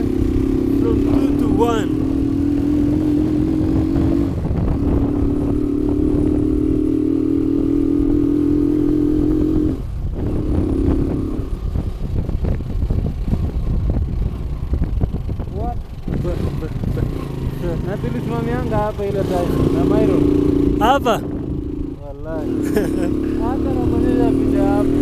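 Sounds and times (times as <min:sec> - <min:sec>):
motorcycle engine running: 0:00.0 - 0:25.0.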